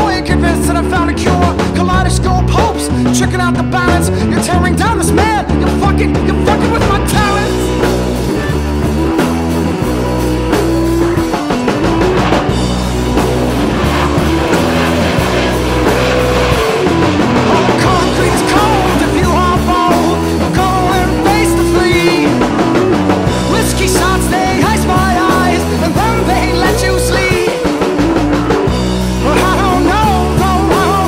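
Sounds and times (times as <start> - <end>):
rock music with pulsing bass: 0.0 - 31.0.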